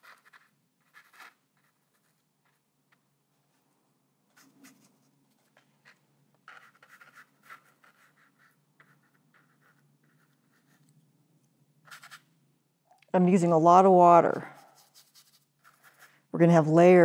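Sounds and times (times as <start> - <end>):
paintbrush scratching textured surface: 0.0 - 2.7, 4.4 - 11.0, 11.8 - 12.3, 14.2 - 16.6.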